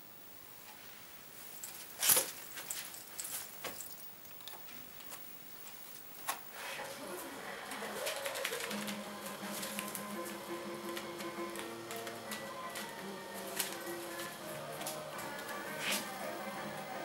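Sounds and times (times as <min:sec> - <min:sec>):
music: 0:07.2 - 0:17.0
playing card clicks and rustles: 0:07.7 - 0:16.1.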